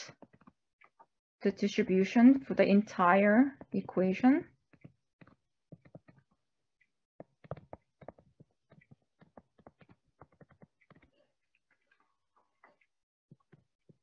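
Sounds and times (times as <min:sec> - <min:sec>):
stylus tapping on tablet: 0:00.1 - 0:00.9, 0:03.5 - 0:06.2, 0:07.2 - 0:11.2.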